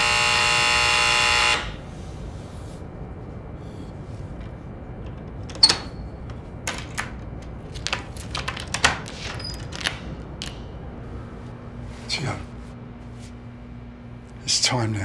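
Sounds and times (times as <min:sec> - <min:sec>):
door chain lock clicking and rattling: 0:05.1 - 0:10.0.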